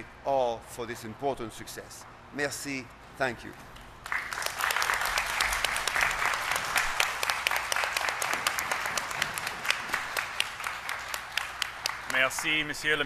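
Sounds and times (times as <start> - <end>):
people applauding: 4.0 - 13.0.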